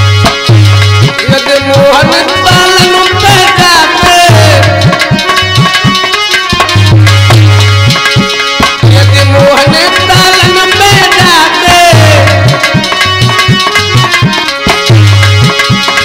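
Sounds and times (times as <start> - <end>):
harmonium: 0.0 - 16.0
hand drum beat: 0.2 - 16.0
man singing: 1.0 - 5.8, 8.6 - 14.2.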